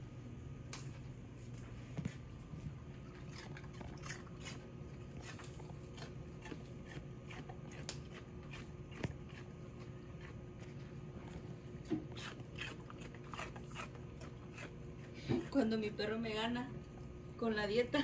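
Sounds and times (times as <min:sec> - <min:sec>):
low steady hum: 0:00.0 - 0:18.0
dog crunching celery: 0:01.7 - 0:15.6.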